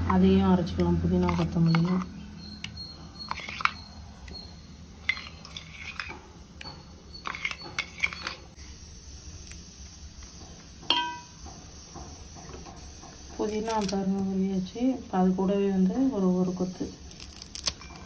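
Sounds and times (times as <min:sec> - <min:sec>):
spoon scraping steel jar: 0:01.2 - 0:08.5.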